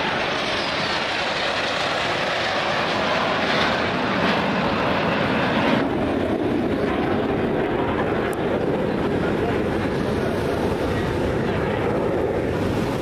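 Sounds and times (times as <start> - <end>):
jets flying rushing noise: 0.0 - 6.2, 12.3 - 13.0.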